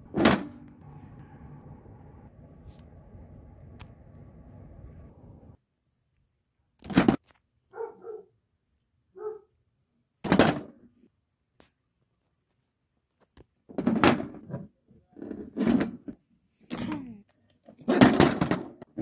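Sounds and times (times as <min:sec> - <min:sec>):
toy figures slamming thuds: 0:06.8 - 0:07.3, 0:10.2 - 0:10.8, 0:13.7 - 0:14.4, 0:17.9 - 0:18.9.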